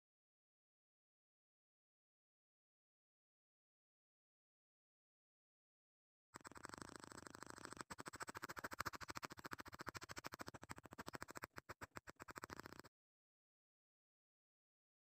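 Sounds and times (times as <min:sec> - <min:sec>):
stylus scratching on drawing tablet: 0:06.4 - 0:12.9.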